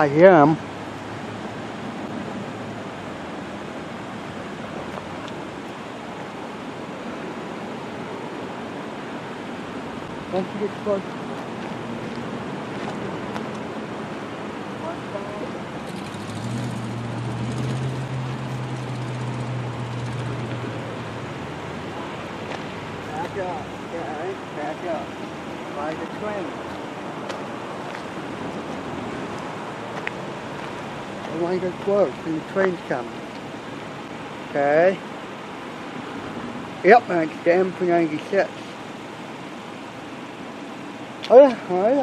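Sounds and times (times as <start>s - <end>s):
background hiss: 0.0s - 42.0s
road traffic rushing: 0.0s - 42.0s
car driving past: 14.7s - 24.0s.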